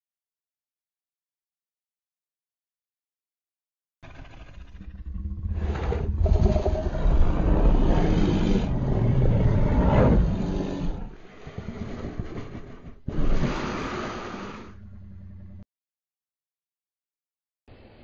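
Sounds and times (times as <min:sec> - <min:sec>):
bear growling: 0:04.0 - 0:15.6.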